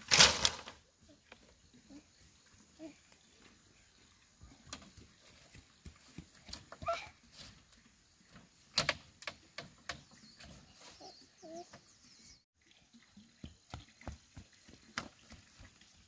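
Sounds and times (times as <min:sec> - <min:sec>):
birds chirping: 0:09.4 - 0:12.5.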